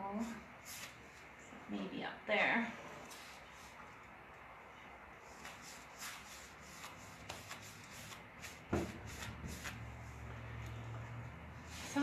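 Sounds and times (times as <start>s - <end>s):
paintbrush swishing on wood: 5.2s - 12.0s.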